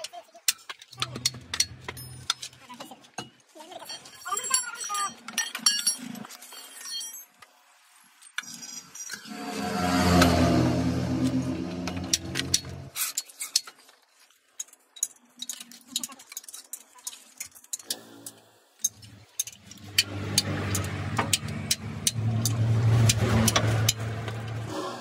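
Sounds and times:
engine hum: 9.2s - 13.0s, 18.9s - 25.0s
metallic clicks of tools: 14.5s - 24.6s.

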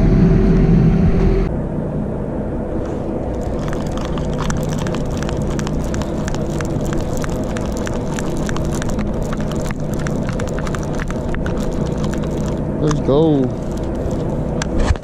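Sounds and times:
boat engine humming: 2.9s - 14.8s.

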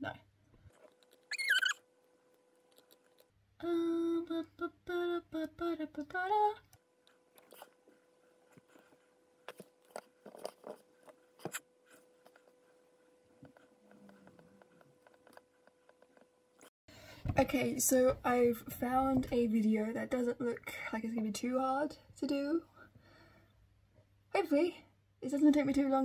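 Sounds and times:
woman humming a tune: 3.6s - 6.6s.

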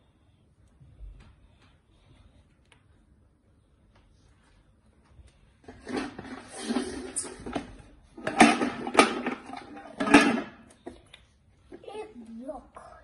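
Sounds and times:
wooden blocks rattling in a tub: 5.6s - 10.6s.

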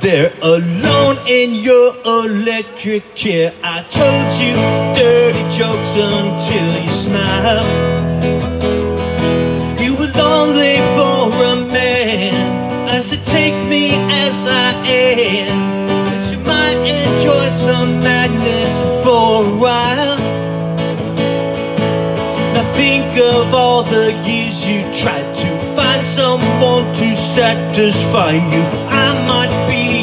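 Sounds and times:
acoustic guitar music: 0.0s - 30.0s.

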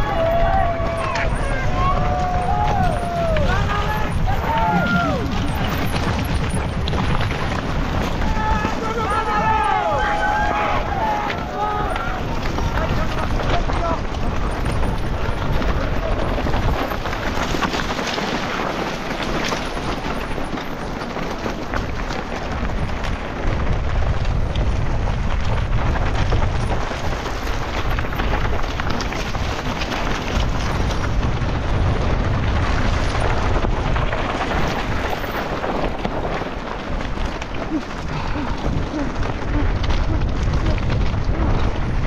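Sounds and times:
bike rattling over rough ground: 0.0s - 42.0s
wind buffeting microphone: 0.0s - 42.0s.

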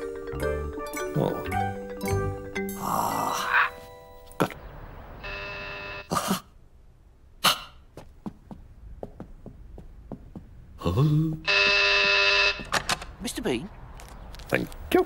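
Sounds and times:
person grunting: 2.8s - 3.8s, 10.8s - 11.4s
electric doorbell buzzing: 5.2s - 6.1s, 11.5s - 12.7s.

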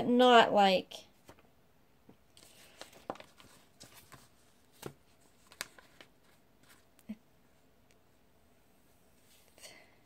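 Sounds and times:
paper sheets rustling: 2.4s - 7.0s.

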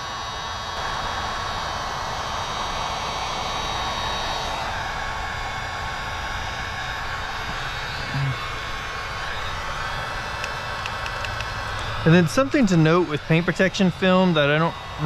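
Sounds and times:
heat gun blowing air: 0.8s - 15.0s
short low hum: 3.8s - 15.0s.

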